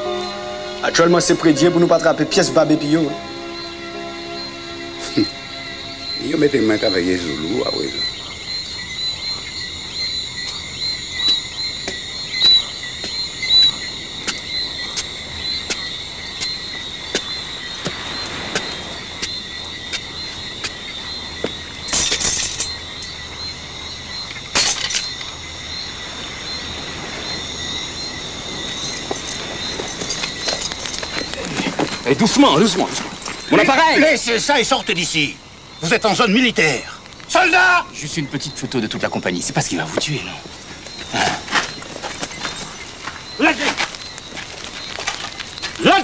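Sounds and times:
crickets chirping: 0.0 - 46.0.

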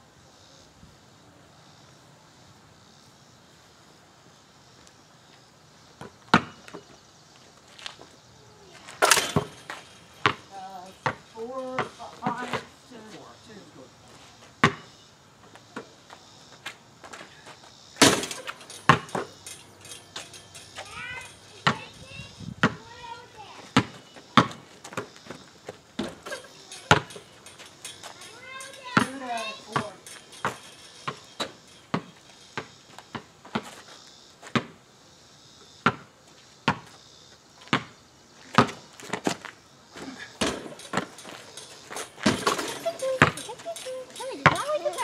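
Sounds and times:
basketball bouncing on asphalt: 6.0 - 6.9, 8.8 - 12.8, 14.6 - 34.8, 35.7 - 45.0.

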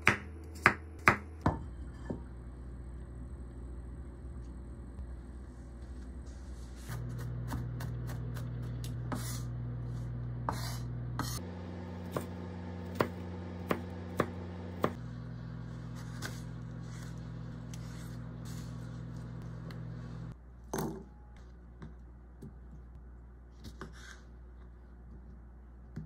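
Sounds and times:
knife chopping on cutting board: 0.0 - 1.6, 12.1 - 15.0
steady low tone: 1.4 - 20.4.

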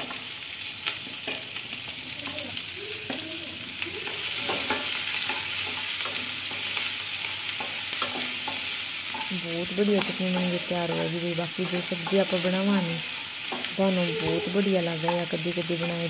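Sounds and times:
onions sizzling in oil: 0.0 - 16.0.

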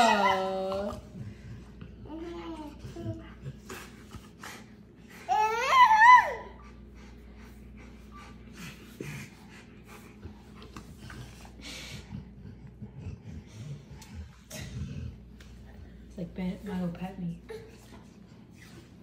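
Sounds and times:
breathing and snuffling: 6.6 - 16.2.

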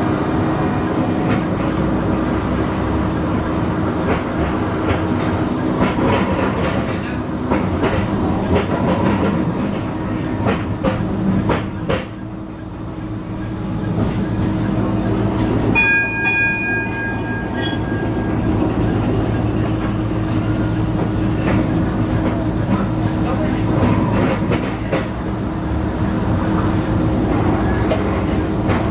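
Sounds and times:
tram motor hum: 0.0 - 28.9
high ringing tone: 15.7 - 18.6.

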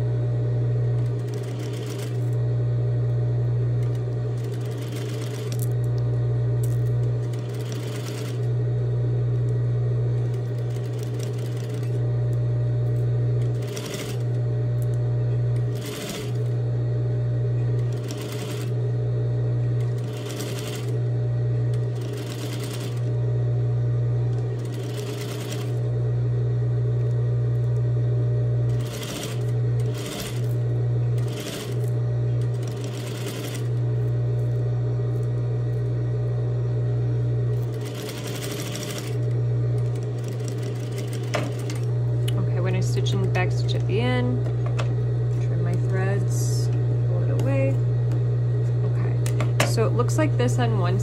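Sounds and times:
steady low hum: 0.0 - 51.0
sewing machine stitching: 1.0 - 2.4, 3.8 - 5.7, 7.0 - 8.5, 10.2 - 12.0, 13.4 - 14.4, 15.6 - 16.6, 17.8 - 18.8, 19.8 - 21.0, 21.7 - 23.1, 24.4 - 25.8, 28.7 - 30.6, 31.2 - 33.8, 37.6 - 41.9.

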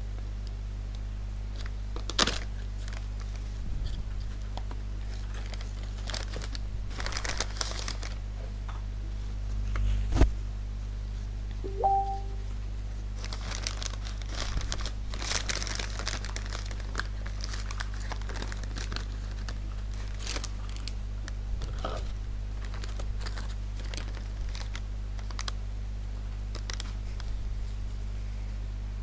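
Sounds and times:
plastic bag crinkling: 5.1 - 8.2, 13.2 - 21.0, 22.6 - 25.6, 26.5 - 27.0
two-note electronic beep: 11.7 - 12.4.

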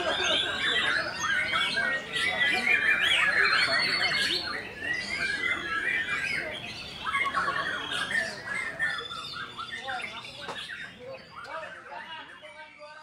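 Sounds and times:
songbirds chorus of whistles and trills: 0.0 - 13.0.

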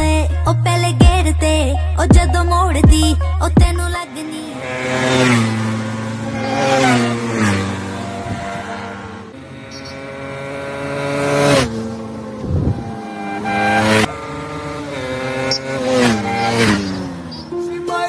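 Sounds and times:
motorcycle accelerating through gears: 4.0 - 17.6.

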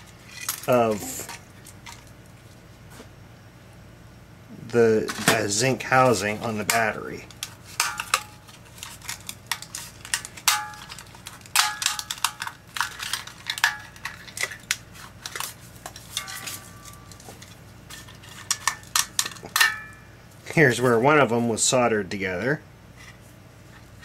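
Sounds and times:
fragments clinking onto metal tray: 6.6 - 20.0
battery casing crunching by hand: 6.7 - 19.8.

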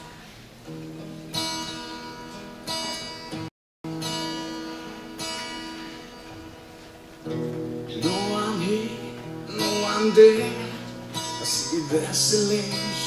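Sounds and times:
acoustic guitar strumming: 0.0 - 13.0
man singing: 7.9 - 13.0.

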